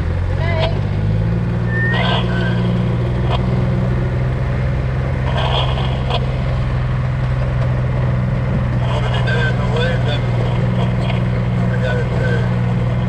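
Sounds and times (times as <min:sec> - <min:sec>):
vehicle engine drone: 0:00.0 - 0:13.0.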